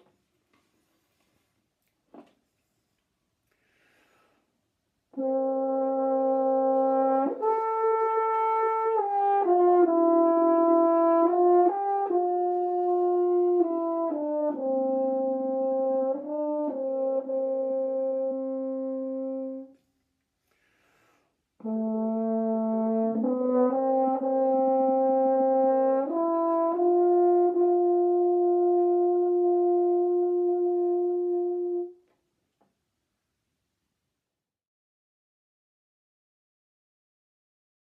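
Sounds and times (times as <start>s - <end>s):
player taking a breath: 3.5s - 4.6s, 20.4s - 21.4s
french horn slow melody: 5.1s - 20.0s, 21.6s - 32.2s.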